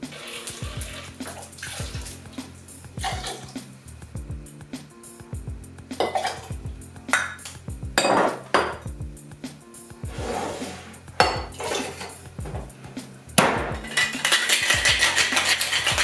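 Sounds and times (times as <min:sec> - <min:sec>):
background music: 0:00.0 - 0:16.0
glassware clinking: 0:06.0 - 0:06.5, 0:08.0 - 0:08.8, 0:11.2 - 0:12.2, 0:13.4 - 0:16.0
cocktail shaker rattling: 0:13.3 - 0:16.0.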